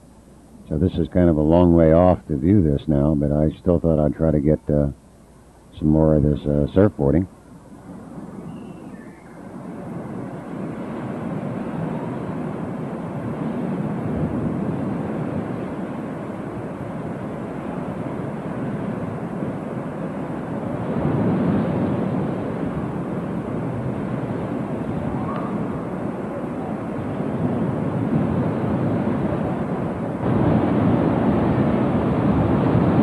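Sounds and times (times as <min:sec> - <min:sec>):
ocean surf breaking: 0:07.9 - 0:33.0.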